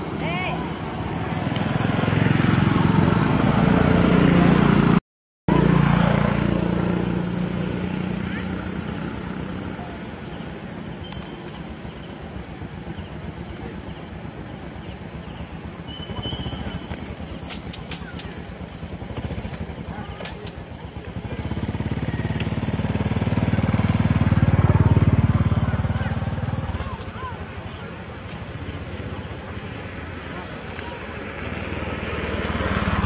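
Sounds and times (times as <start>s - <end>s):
insects buzzing: 0.0s - 4.8s, 5.5s - 33.0s
low motor rumble: 11.8s - 33.0s.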